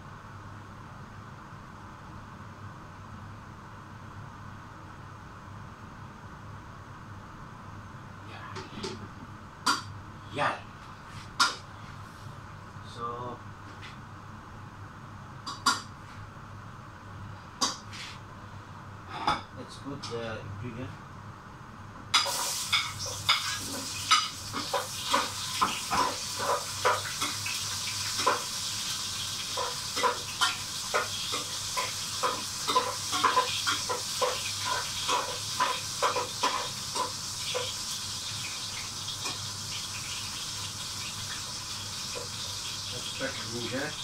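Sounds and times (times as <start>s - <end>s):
food sizzling in hot oil: 22.1s - 44.0s.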